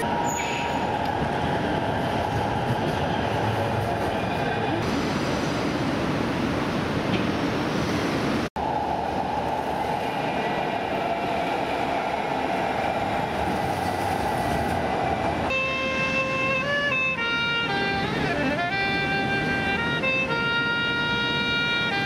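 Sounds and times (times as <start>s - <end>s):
light-rail train running: 0.0s - 22.0s
saxophone melody: 15.5s - 22.0s.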